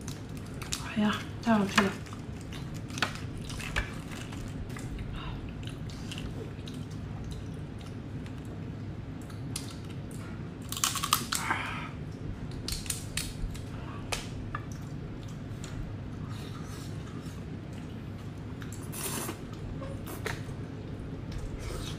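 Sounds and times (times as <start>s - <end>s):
shrimp shells cracking: 10.7s - 11.5s.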